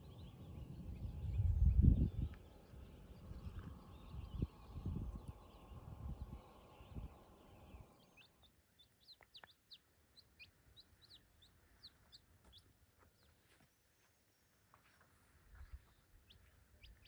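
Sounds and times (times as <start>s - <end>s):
wind buffeting microphone: 0.0s - 8.0s.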